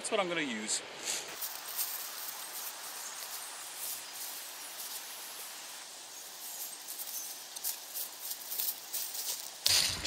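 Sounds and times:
woodland hiss: 0.2s - 10.0s.

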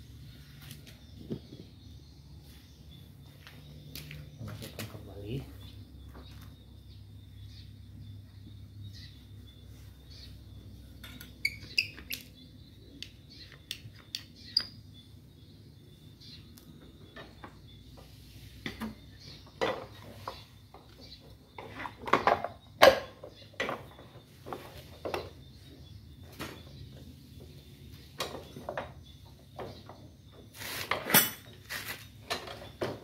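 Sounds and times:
metal wheel parts clinking: 30.8s - 32.6s.

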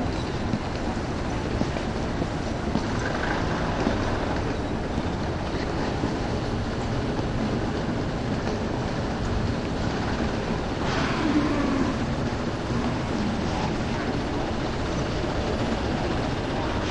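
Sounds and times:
urban traffic rumble: 0.0s - 16.9s.

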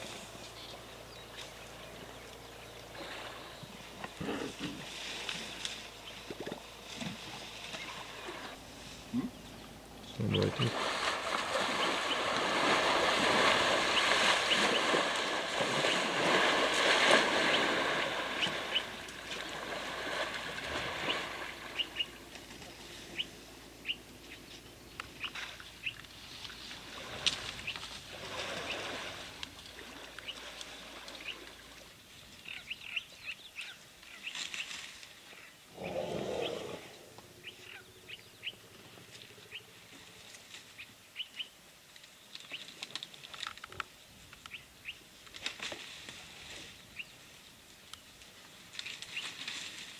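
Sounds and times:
small birds chirping: 9.0s - 10.8s, 21.0s - 26.7s, 43.7s - 45.0s.

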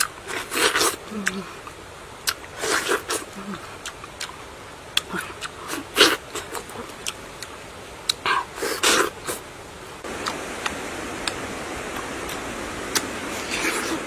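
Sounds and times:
fruit being bitten and chewed: 0.0s - 9.5s, 10.1s - 14.0s
wet lip smacks and clicks: 2.2s - 3.2s, 10.2s - 13.1s.

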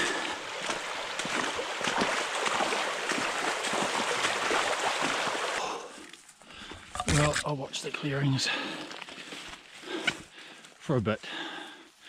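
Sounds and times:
stream rushing: 0.0s - 5.6s
boots splashing in water: 0.0s - 5.8s.

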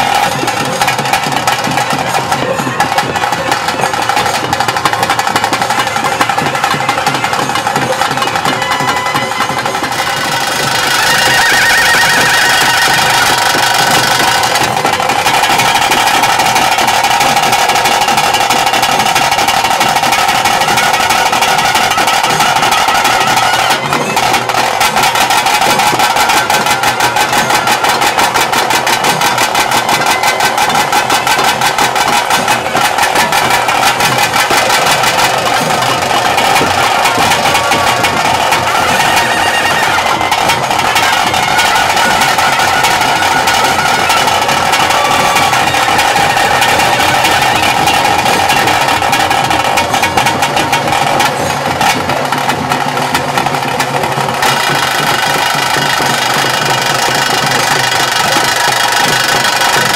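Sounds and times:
fast drumming: 0.0s - 59.9s
high held pipe tone: 5.7s - 19.7s, 20.5s - 51.7s.

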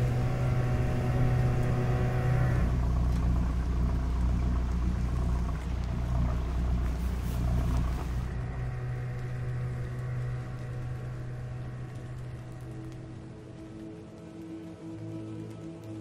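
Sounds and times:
outboard motor running: 0.0s - 13.8s.

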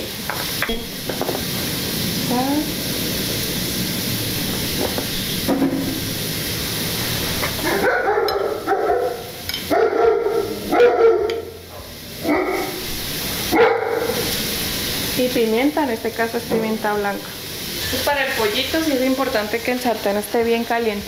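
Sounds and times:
vegetables sizzling in oil: 0.0s - 21.0s
dog barking: 7.6s - 12.8s, 13.5s - 14.2s.

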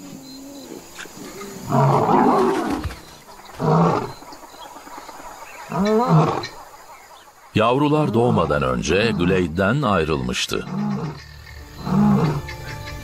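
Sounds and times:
lions snarling and growling: 0.0s - 2.9s, 3.5s - 4.3s, 5.6s - 6.6s, 10.5s - 12.7s.

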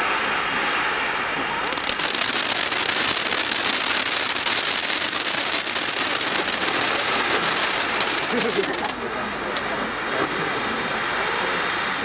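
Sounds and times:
fountain firework hissing sparks: 0.0s - 12.0s
rapid crackling: 1.6s - 9.8s.

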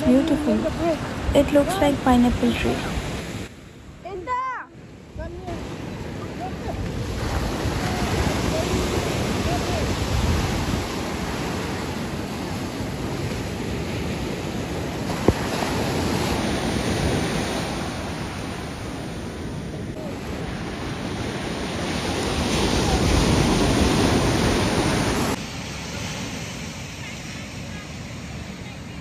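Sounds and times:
wind buffeting microphone: 4.2s - 26.4s
surf breaking on beach: 5.1s - 29.0s.

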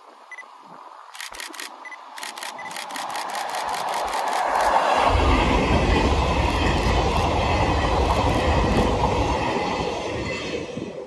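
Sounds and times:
train wheels rumbling on track: 2.8s - 11.0s
wheels clicking over rail joints: 6.3s - 9.2s.

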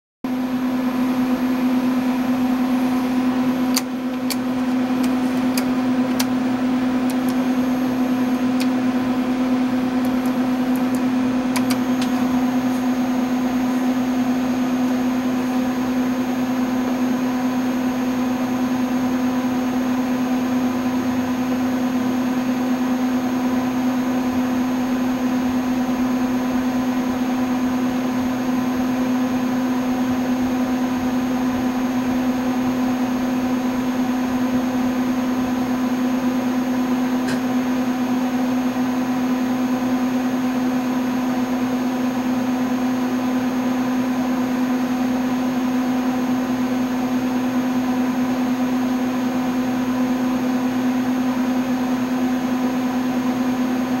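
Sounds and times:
computer fans humming: 0.3s - 54.0s
toggle switches clicking: 10.0s - 12.2s.

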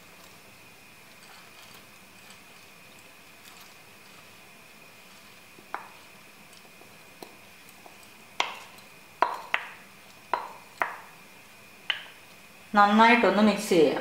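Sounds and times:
utensil knocking on frying pan rim: 5.7s - 6.0s, 6.8s - 11.1s.

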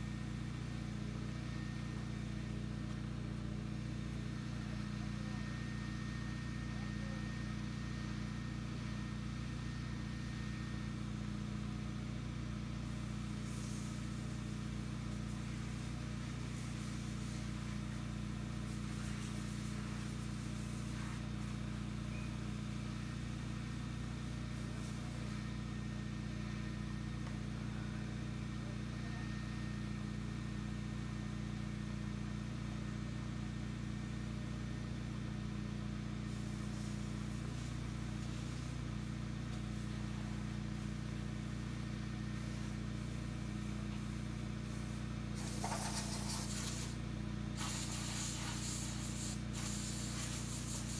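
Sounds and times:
low machine hum: 0.0s - 50.9s
high hiss: 45.4s - 47.0s, 47.6s - 50.9s.

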